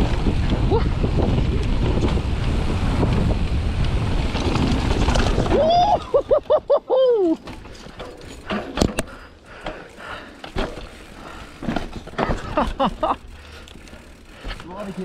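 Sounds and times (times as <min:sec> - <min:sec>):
mountain bike rattling over roots: 0:00.0 - 0:06.6, 0:07.2 - 0:15.0
rider whooping: 0:05.3 - 0:07.5.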